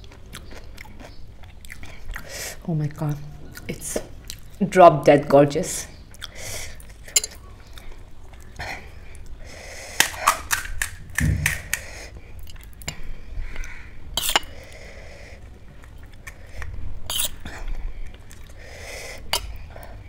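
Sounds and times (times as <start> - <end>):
crisp shells cracking: 10.0 - 11.9
dull thump: 11.2 - 11.8.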